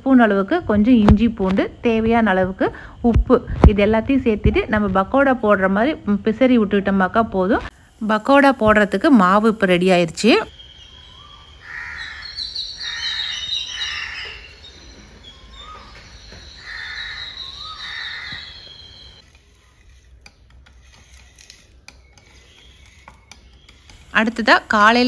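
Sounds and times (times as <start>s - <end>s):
birds calling: 10.5s - 19.2s.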